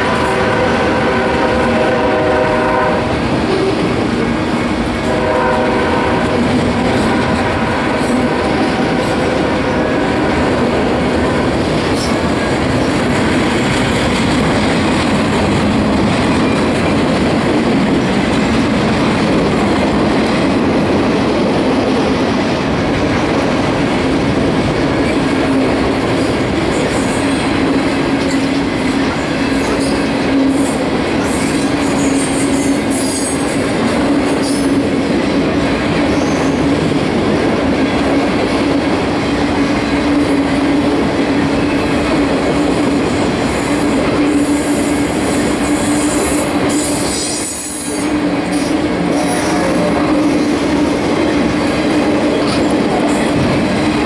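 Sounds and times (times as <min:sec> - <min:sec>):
freight cars rumbling on rails: 0:00.0 - 0:54.0.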